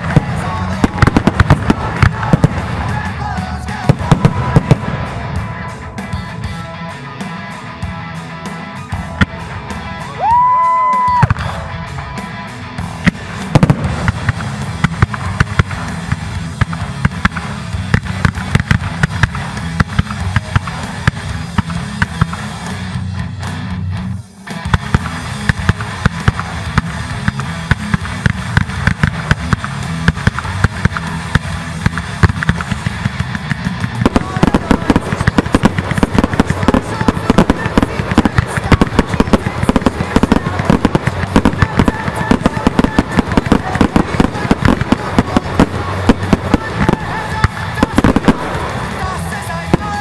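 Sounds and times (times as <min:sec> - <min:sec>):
fireworks bangs and crackling: 0:00.0 - 0:23.6, 0:24.5 - 0:50.0
music playing: 0:00.0 - 0:50.0.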